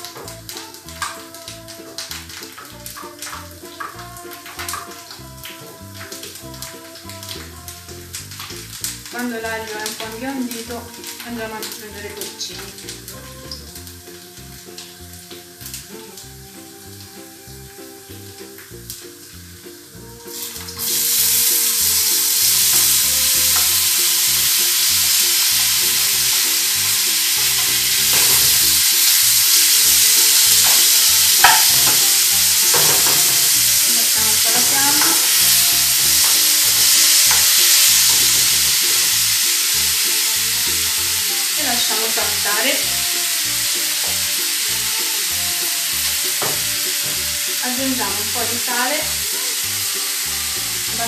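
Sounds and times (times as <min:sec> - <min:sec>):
mushrooms sizzling in frying pan: 0:00.0 - 0:51.0
spoon stirring and scraping pan: 0:25.4 - 0:39.1.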